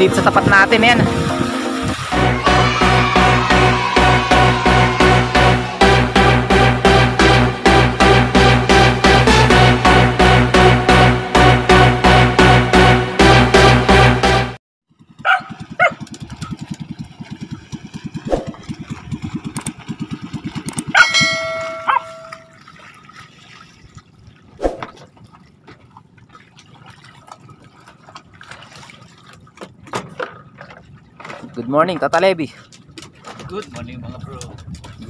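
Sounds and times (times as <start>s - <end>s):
small boat engine running: 0.0s - 23.5s
bell-like ding: 21.0s - 22.6s.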